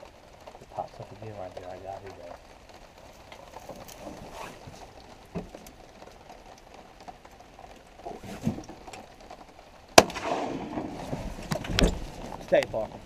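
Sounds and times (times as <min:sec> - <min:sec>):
shotgun shot with echo: 0:10.0 - 0:11.0.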